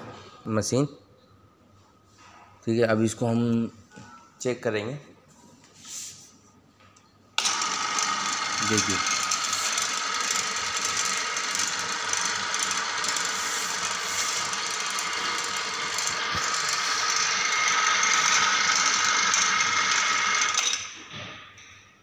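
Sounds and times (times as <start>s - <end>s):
electric mixer motor whining: 7.4s - 21.0s.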